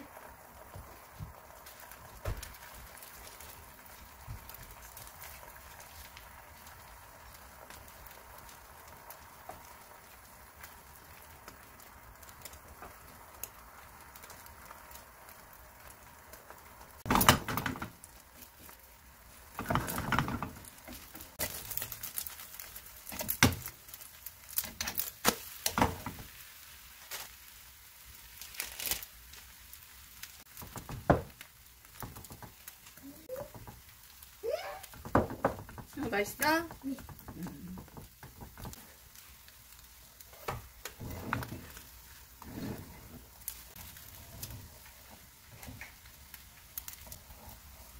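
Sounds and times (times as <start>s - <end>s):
faint sizzle in frying pan: 0.0s - 47.9s
chopsticks and spoon scraping pan: 34.8s - 46.1s.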